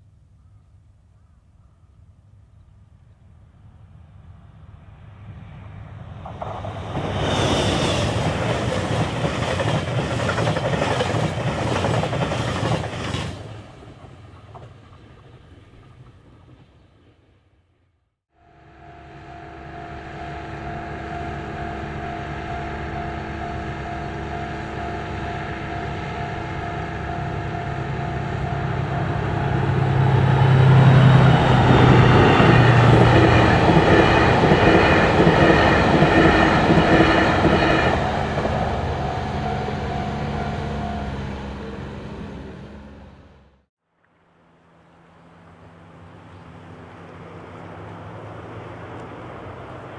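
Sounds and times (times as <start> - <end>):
diesel locomotive passing: 3.4 - 49.9
steady high tone: 18.3 - 43.3.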